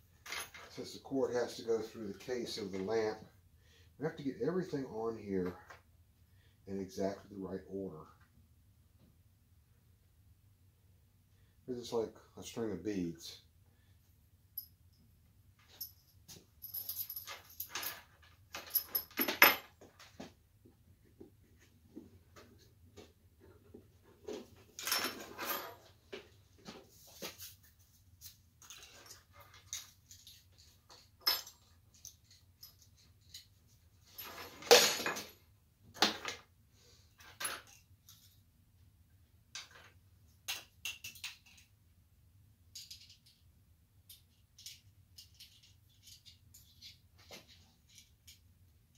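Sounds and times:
metal parts clinking: 16.6 - 19.7, 28.6 - 35.3, 42.8 - 43.4, 44.1 - 48.4
metal parts clattering: 34.1 - 35.3, 44.6 - 48.1.

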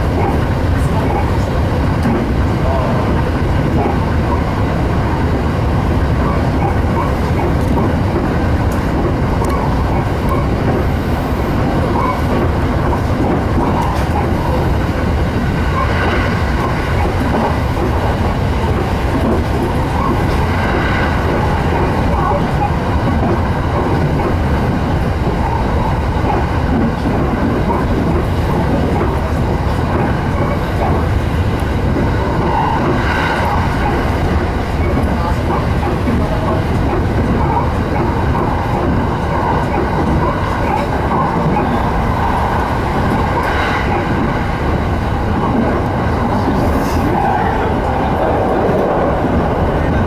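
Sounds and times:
train wheels rumbling on rails: 0.0 - 50.0
higher-pitched train swells: 13.6 - 26.1, 30.2 - 36.6, 38.2 - 50.0.

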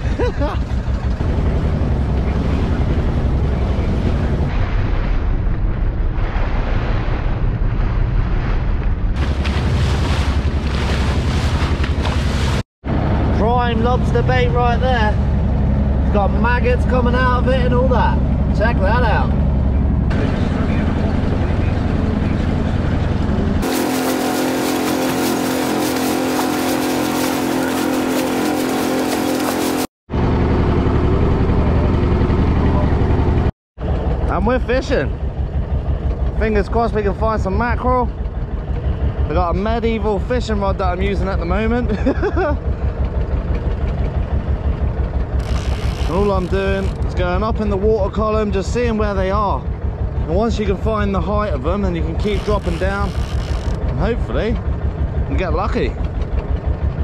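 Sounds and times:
boat engine running: 0.0 - 4.5, 9.2 - 57.0
water splashing along hull: 0.0 - 12.7, 23.4 - 29.9, 42.6 - 47.6, 51.9 - 57.0.

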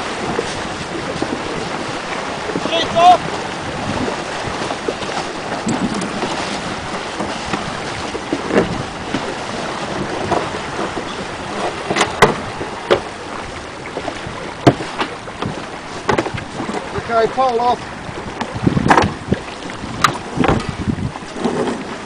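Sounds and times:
water rushing past hull: 0.0 - 22.0
wind buffeting microphone: 0.0 - 22.0
sharp knocks and clicks: 11.8 - 13.1, 14.6 - 16.5, 18.4 - 19.1, 20.0 - 20.8.

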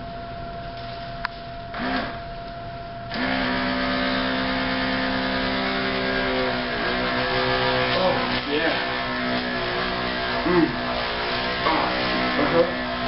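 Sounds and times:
small electric motor humming: 1.7 - 2.2, 3.1 - 13.0.

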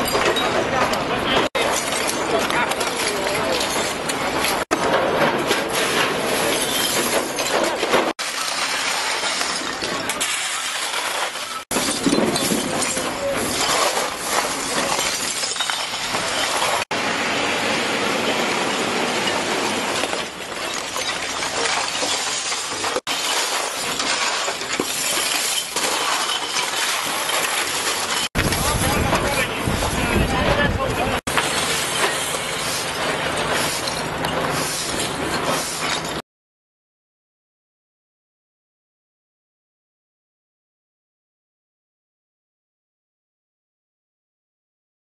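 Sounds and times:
glass bottles clinking and scraping: 0.0 - 16.9, 18.0 - 36.2.

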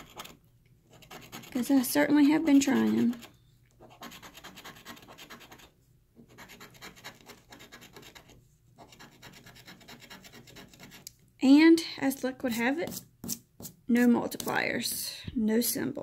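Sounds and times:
coin scraping scratch-off ticket: 1.0 - 3.3.

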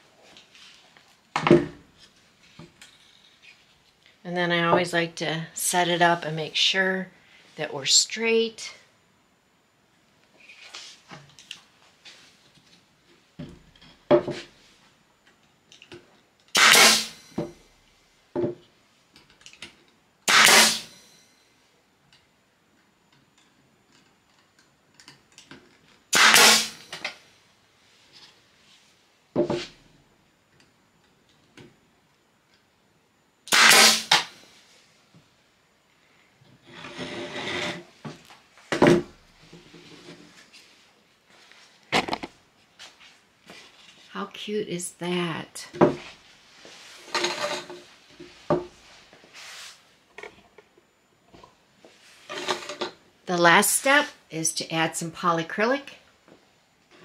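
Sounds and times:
nail gun firing: 16.5 - 17.2, 20.3 - 20.9, 26.1 - 27.0, 33.5 - 34.3.

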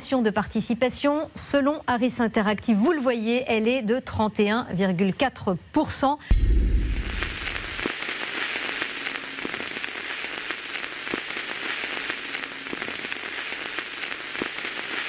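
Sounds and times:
crackles and clicks: 6.3 - 15.0
steady hiss: 6.3 - 15.0.

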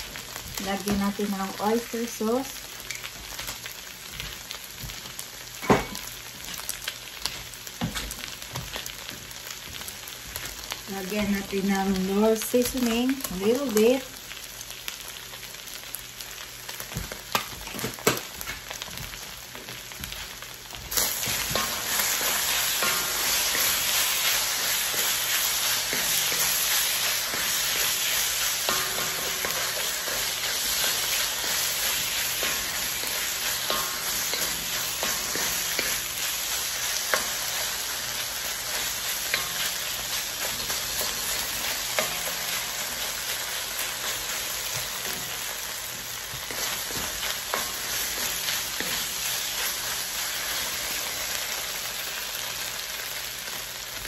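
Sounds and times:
beef sizzling in a wok: 0.0 - 54.0
wooden spoon scraping wok: 20.2 - 51.2.

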